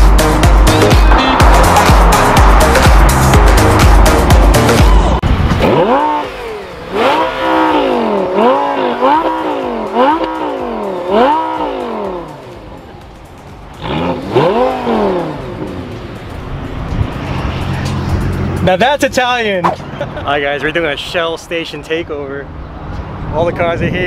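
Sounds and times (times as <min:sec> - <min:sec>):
car engine revving: 0:00.0 - 0:18.9.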